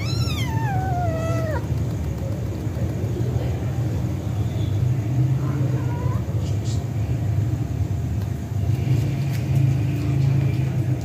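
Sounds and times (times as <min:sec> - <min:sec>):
cat meowing: 0:00.0 - 0:01.7.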